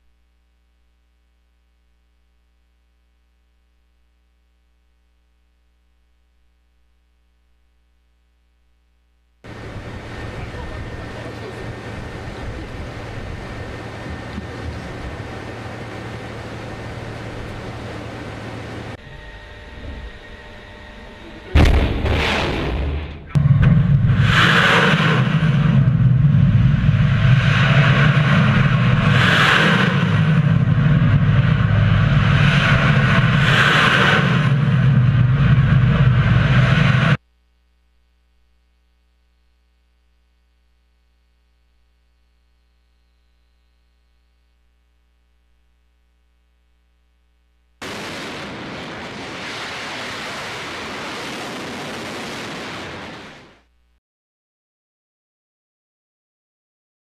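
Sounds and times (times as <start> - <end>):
faint steady hum: 0.0 - 22.0, 34.5 - 48.6
loud low rumble: 9.5 - 37.2
missile booster rushing noise: 21.5 - 37.2, 47.8 - 53.6.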